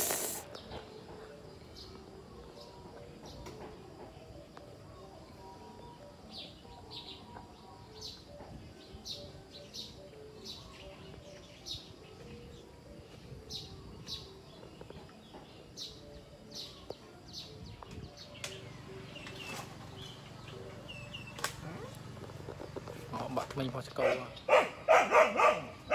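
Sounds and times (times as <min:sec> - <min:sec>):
small bird chirping: 0:00.0 - 0:01.0, 0:05.3 - 0:24.6.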